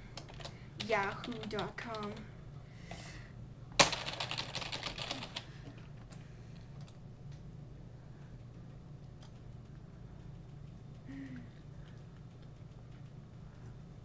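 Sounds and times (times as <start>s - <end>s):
laptop keyboard typing: 0.2s - 2.2s, 3.8s - 6.2s, 9.0s - 11.0s, 11.8s - 13.3s.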